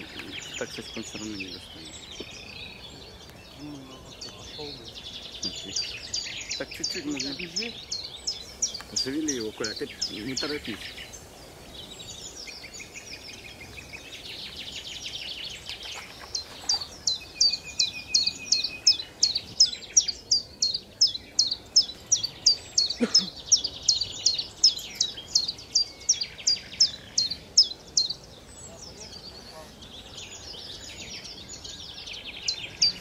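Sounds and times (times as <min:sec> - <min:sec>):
loud high bird chirps: 0:00.0 - 0:33.0
buzzy high bird trill: 0:03.5 - 0:13.5.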